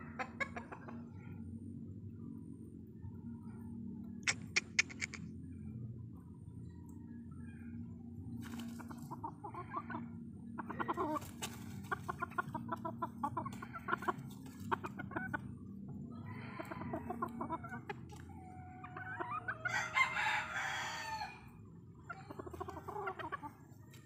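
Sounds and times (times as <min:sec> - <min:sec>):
chickens clucking: 0:00.0 - 0:05.5, 0:07.4 - 0:24.0
rooster crowing: 0:19.6 - 0:21.5.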